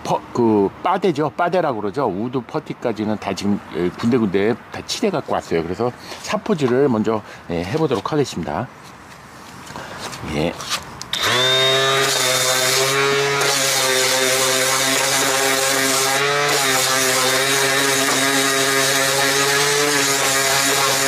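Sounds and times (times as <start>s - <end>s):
orbital sander sanding wood: 11.2s - 21.0s.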